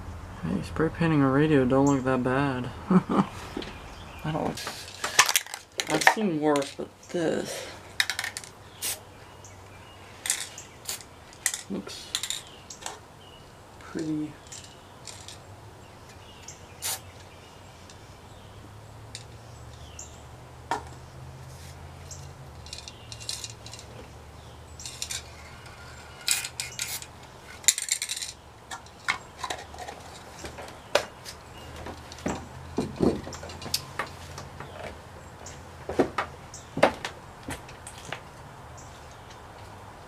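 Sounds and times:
spray can hissing: 0:08.8 - 0:09.0, 0:16.8 - 0:17.1.

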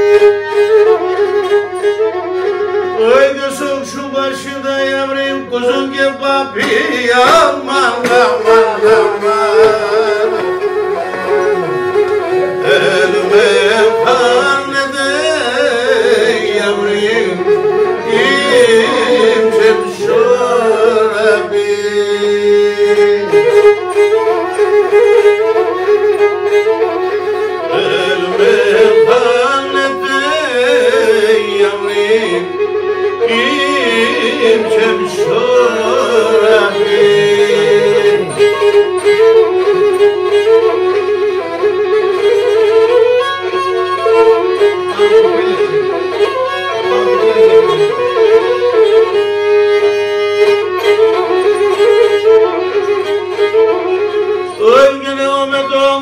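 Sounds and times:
lyra bowed folk melody: 0:00.0 - 0:05.8, 0:06.9 - 0:56.0
man singing: 0:03.0 - 0:10.7, 0:12.3 - 0:24.3, 0:27.6 - 0:39.6, 0:54.4 - 0:56.0.

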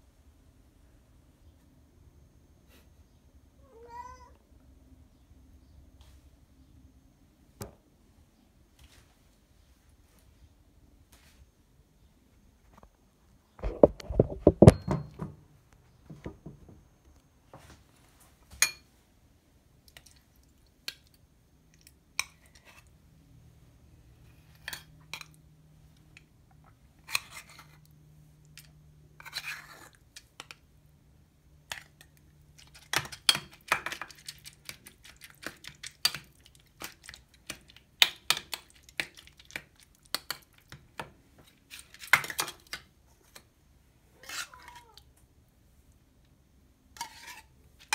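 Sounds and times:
spoon scraping metal bowls: 0:27.0 - 0:27.9, 0:28.6 - 0:30.6, 0:41.5 - 0:42.8, 0:44.3 - 0:44.8, 0:47.0 - 0:47.9.

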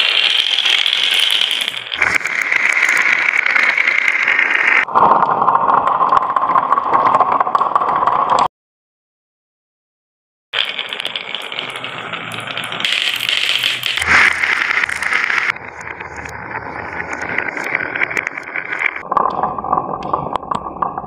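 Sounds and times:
marbles rattling on wood: 0:00.0 - 0:04.8, 0:10.6 - 0:19.1.

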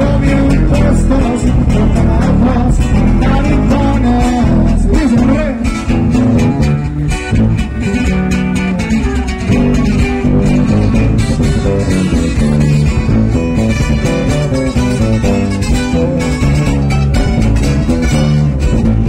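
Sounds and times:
acoustic guitars strumming: 0:00.0 - 0:19.0
electric bass: 0:00.0 - 0:19.0.

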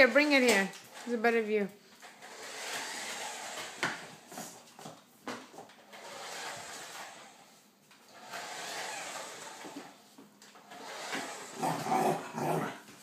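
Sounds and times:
toy car motor whirring: 0:02.2 - 0:03.9, 0:06.0 - 0:07.4, 0:08.1 - 0:09.8, 0:10.6 - 0:11.6.

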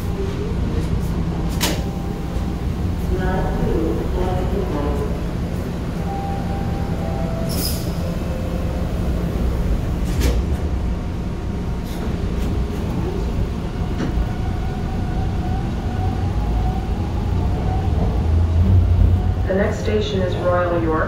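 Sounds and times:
subway train rumble: 0:00.0 - 0:21.0.

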